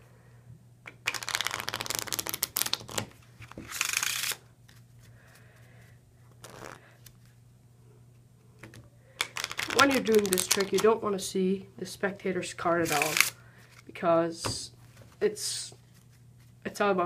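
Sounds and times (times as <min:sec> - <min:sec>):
playing cards riffle shuffled: 0:01.0 - 0:05.5, 0:06.3 - 0:07.4, 0:08.6 - 0:11.0, 0:12.8 - 0:13.9
card deck brushing: 0:06.4 - 0:06.8, 0:12.8 - 0:13.3.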